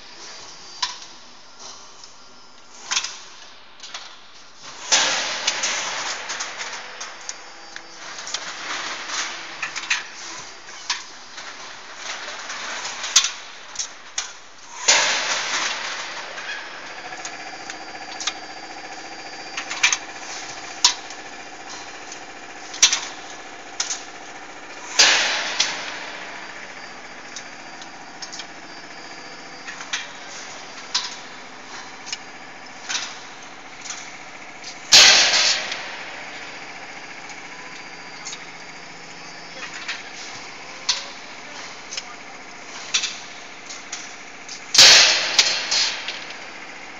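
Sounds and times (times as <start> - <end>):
machine hum: 0.0 - 46.9
metallic clicks and clanks: 39.6 - 46.4.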